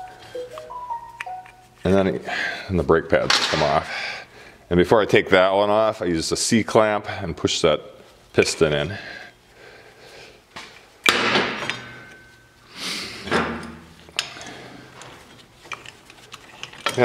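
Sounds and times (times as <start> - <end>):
metal knocks and clatter of tools: 11.6 - 12.4, 13.3 - 17.0.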